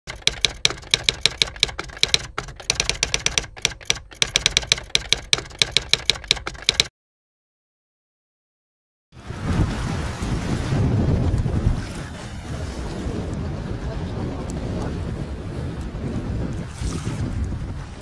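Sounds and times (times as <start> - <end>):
keyboard typing clicks: 0.1 - 6.9.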